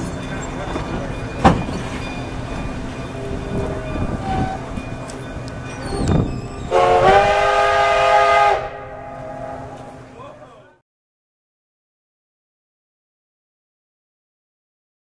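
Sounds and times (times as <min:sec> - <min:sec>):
train rumbling: 0:00.0 - 0:10.8
steam locomotive whistle: 0:04.1 - 0:04.7, 0:06.0 - 0:10.0.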